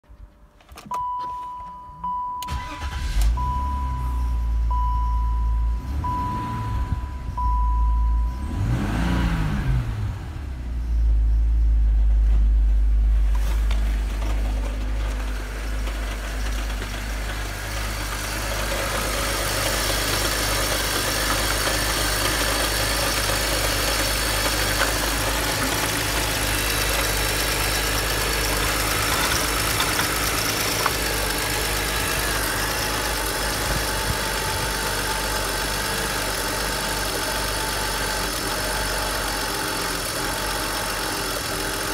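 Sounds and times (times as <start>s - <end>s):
car engine starting and idling: 0.1s - 41.9s
dashboard warning chime beeping: 0.8s - 8.9s.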